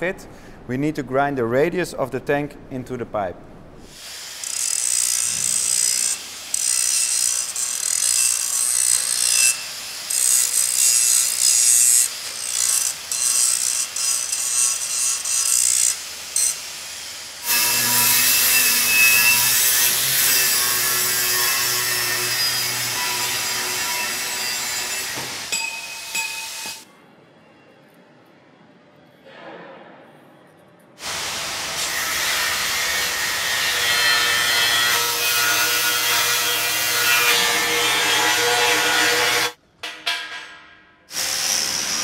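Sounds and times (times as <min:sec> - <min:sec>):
angle grinder grinding steel: 0:04.1 - 0:26.8.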